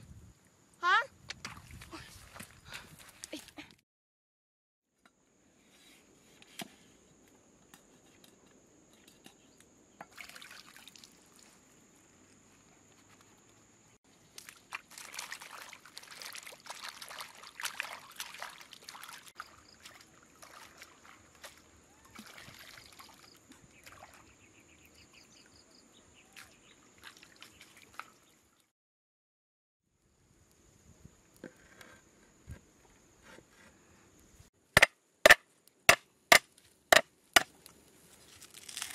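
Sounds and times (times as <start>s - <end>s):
water sloshing and splashing: 1.4s - 3.7s, 10.1s - 11.7s, 14.1s - 24.4s, 26.3s - 28.6s.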